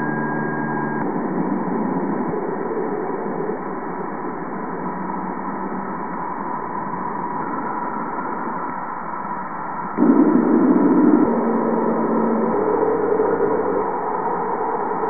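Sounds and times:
electronic tones: 0.0 - 1.1
eerie hiss with held tone: 0.0 - 15.0.

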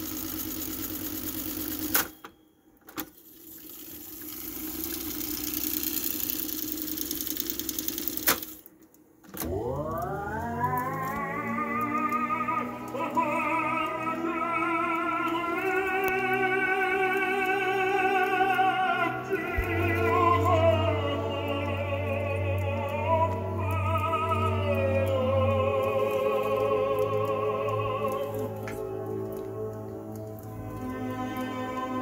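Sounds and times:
operatic singing: 9.4 - 32.0
orchestral accompaniment: 10.2 - 32.0.

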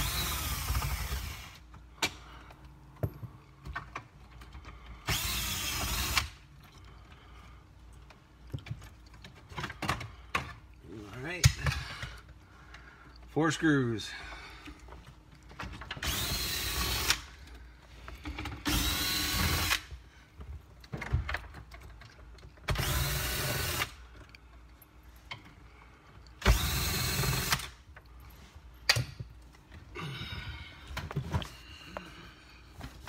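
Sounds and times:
cordless drill whining: 0.0 - 1.6, 5.1 - 6.4, 16.0 - 17.3, 18.6 - 19.9, 22.7 - 24.0, 26.4 - 27.8.

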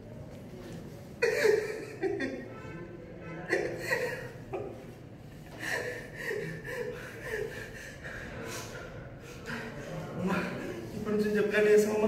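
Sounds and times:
man laughing: 3.4 - 8.7.

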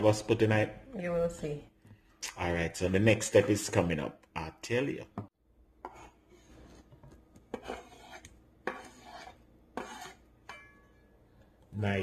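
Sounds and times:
knife scraping cutting board: 5.8 - 10.6.

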